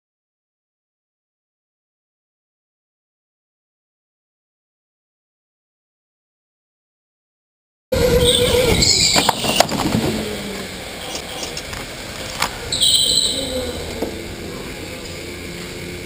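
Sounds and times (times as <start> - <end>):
tyre noise on concrete: 7.9 - 15.7
tyre squeals: 8.0 - 11.6, 12.5 - 14.2
electric motor whine: 8.0 - 16.0.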